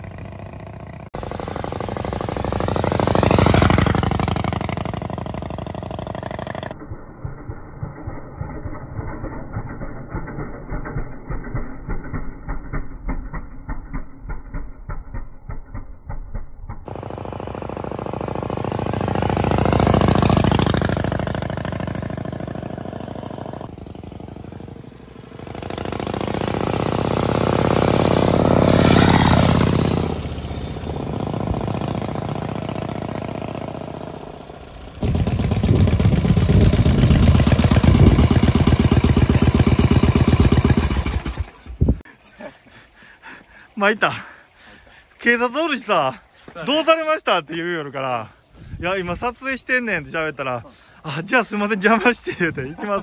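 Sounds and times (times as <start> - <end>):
motorcycle engine riding by: 0.0 - 6.8, 7.9 - 42.1.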